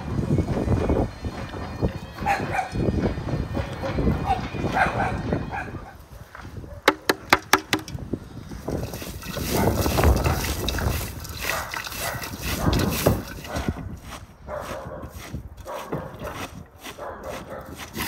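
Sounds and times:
leaves crunching and squelching: 8.7 - 14.2
hands kneading shredded cabbage: 8.8 - 18.0.

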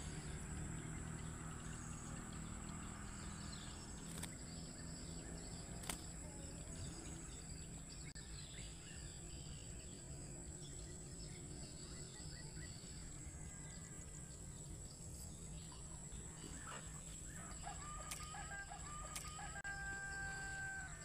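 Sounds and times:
high-pitched insect drone: 0.0 - 21.0
rooster crowing: 17.4 - 21.0.

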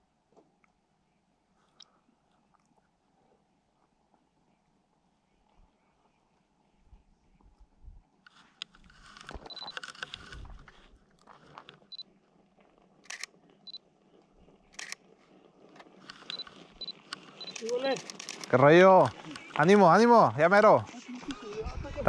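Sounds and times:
handling rustle: 8.2 - 20.0
camera shutter clicks: 8.3 - 10.5, 13.0 - 13.8, 14.7 - 15.0, 16.0 - 19.6
camera focus beeps: 9.1 - 10.4, 11.9 - 12.1, 13.1 - 13.8, 14.8 - 15.0, 16.0 - 19.6.

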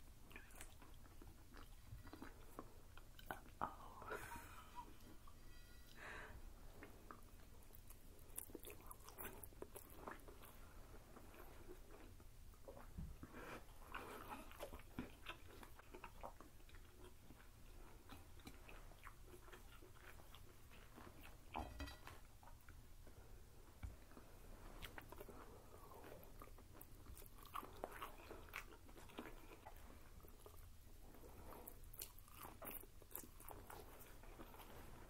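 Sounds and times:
people chewing and slurping: 0.0 - 22.8, 23.9 - 35.0.

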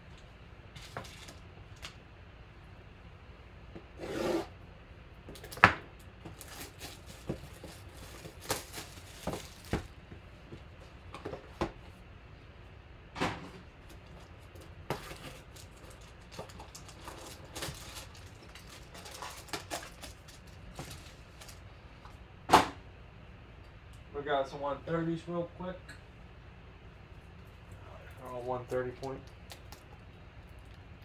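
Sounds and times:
foil packs rustling: 6.2 - 10.0, 13.9 - 21.7.

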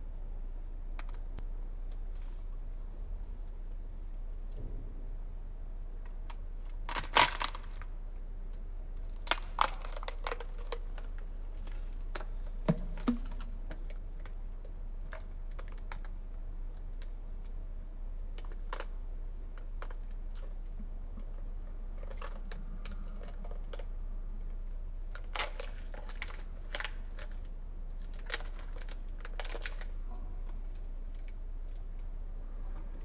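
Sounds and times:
steady low hum: 0.0 - 33.0
eggshell cracking: 5.9 - 32.2.

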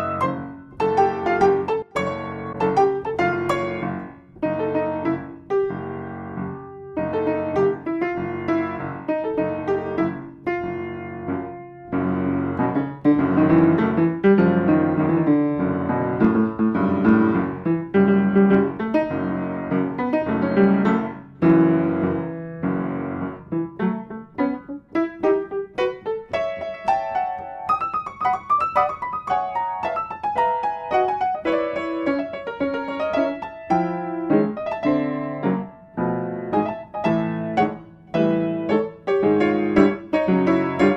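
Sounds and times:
solo piano music: 0.0 - 40.9.

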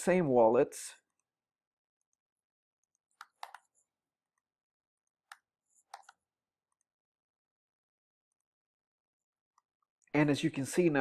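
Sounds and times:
computer mouse clicks: 2.0 - 3.8, 5.2 - 6.9.

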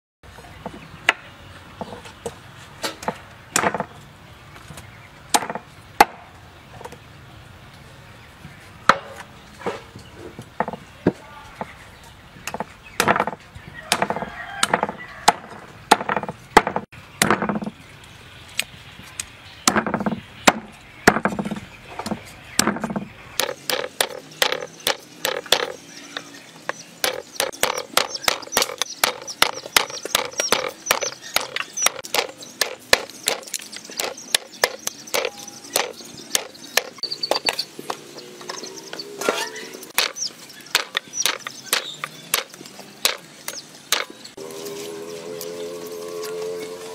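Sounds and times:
cleaver chopping on wooden block: 12.5 - 17.7, 19.7 - 25.8, 27.0 - 37.6, 40.0 - 44.1.

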